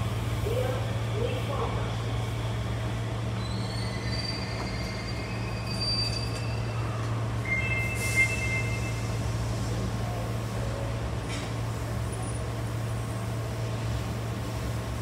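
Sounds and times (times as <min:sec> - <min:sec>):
train running hum: 0:00.0 - 0:15.0
high-pitched wheel squeal: 0:03.4 - 0:09.2.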